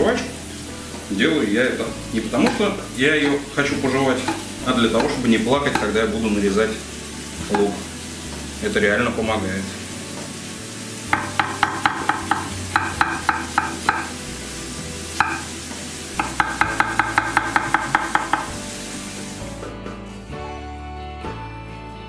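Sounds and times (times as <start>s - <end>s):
vegetables sizzling in oil: 0.0s - 19.9s
background music: 0.0s - 22.0s
knife chopping on wooden board: 11.1s - 14.2s, 15.2s - 15.5s, 16.2s - 18.6s.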